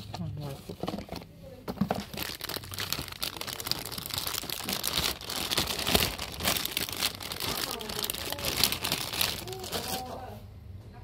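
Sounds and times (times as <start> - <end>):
plastic bag crinkling: 1.8 - 10.3.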